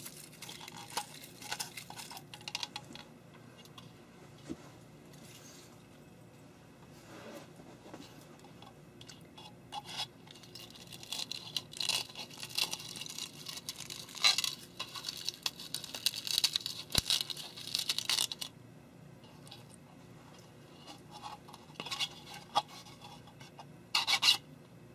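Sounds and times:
plastic crackling and snapping: 0:00.0 - 0:03.1, 0:10.3 - 0:18.5.

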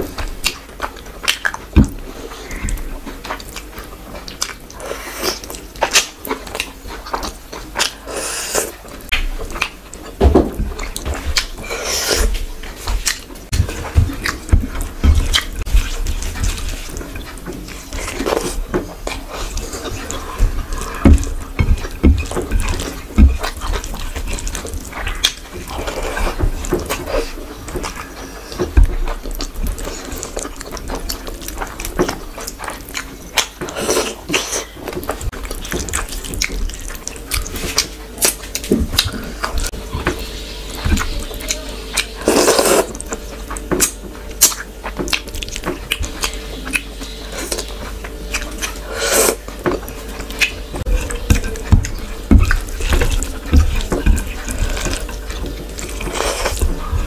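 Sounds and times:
wet chewing and lip smacks: 0:14.2 - 0:39.8, 0:41.8 - 0:57.0.

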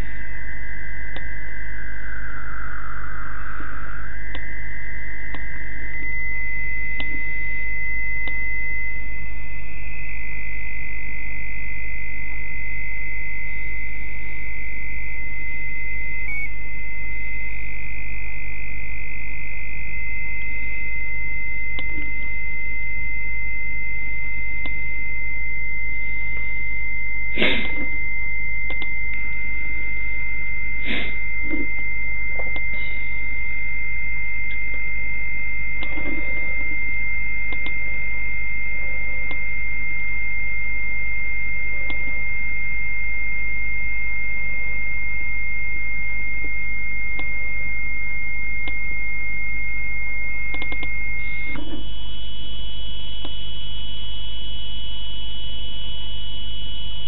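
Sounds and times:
constant low hum: 0:00.0 - 0:57.0
steady high radio whistle: 0:00.0 - 0:57.0
radio hiss: 0:12.4 - 0:39.5, 0:50.8 - 0:57.0.

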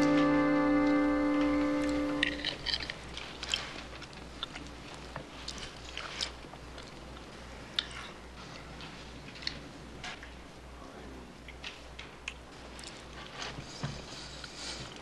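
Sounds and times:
guitar note: 0:00.0 - 0:02.6.

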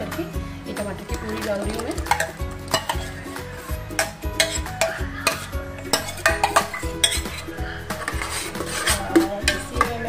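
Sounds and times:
background music: 0:00.0 - 0:10.0
ladle scraping and clinking on steel: 0:02.0 - 0:03.2, 0:03.8 - 0:10.0.

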